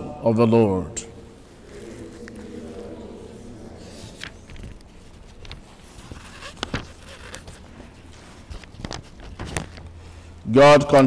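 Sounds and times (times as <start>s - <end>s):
papers being moved: 1.6s - 10.1s.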